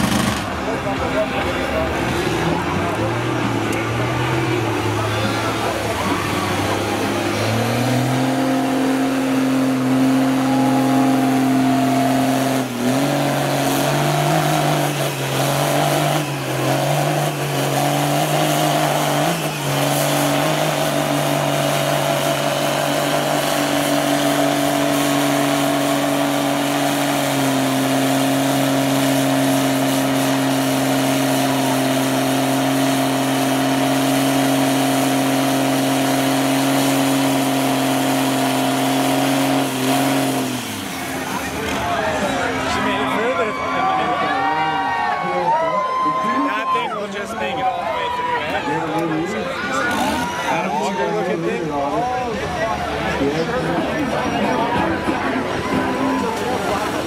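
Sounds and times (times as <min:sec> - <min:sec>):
truck engine at high revs: 0:00.0 - 0:57.0.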